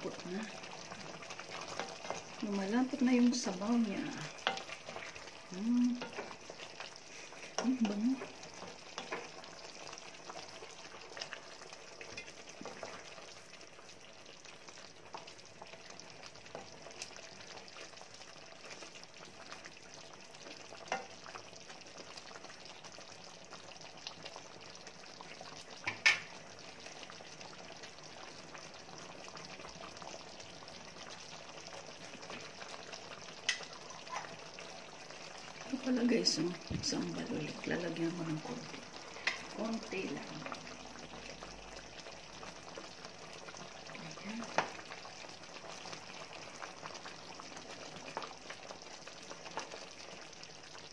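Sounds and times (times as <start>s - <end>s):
wooden spoon stirring and scraping: 0.0s - 13.5s
sauce simmering in a frying pan: 0.0s - 50.9s
small knocks on pan: 25.8s - 26.3s.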